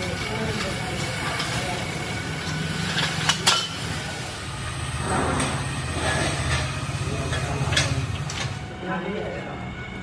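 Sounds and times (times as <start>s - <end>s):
machine hum: 0.0s - 10.0s
metallic clanks of steel: 0.1s - 4.0s.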